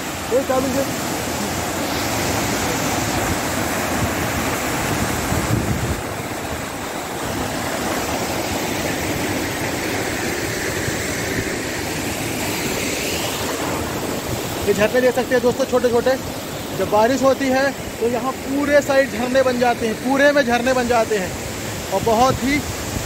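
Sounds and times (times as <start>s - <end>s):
waterfall rushing: 0.0s - 23.0s
wind rumble on microphone: 2.2s - 6.7s.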